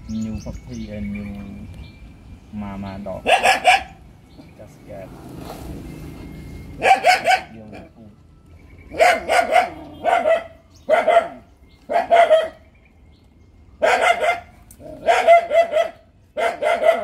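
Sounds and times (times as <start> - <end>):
dog barking: 3.2 - 4.0, 6.8 - 7.9, 8.9 - 12.6, 13.8 - 17.0.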